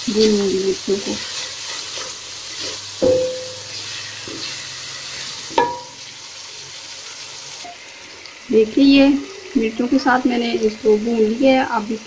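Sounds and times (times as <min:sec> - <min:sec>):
masala sizzling in oil: 0:00.0 - 0:12.0
spoon knocking pan: 0:03.0 - 0:04.6, 0:05.5 - 0:06.0.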